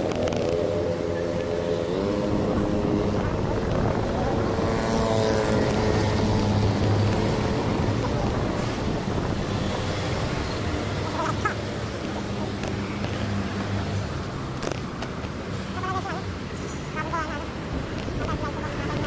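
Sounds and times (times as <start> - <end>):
wind on microphone: 0.0 - 13.3, 17.5 - 19.0
road traffic noise: 0.0 - 19.0
vehicle engine humming: 0.0 - 19.0.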